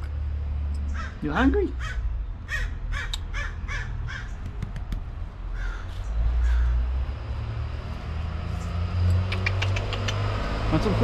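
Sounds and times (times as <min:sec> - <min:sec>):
harsh animal calls: 0:00.9 - 0:04.5, 0:05.5 - 0:07.0.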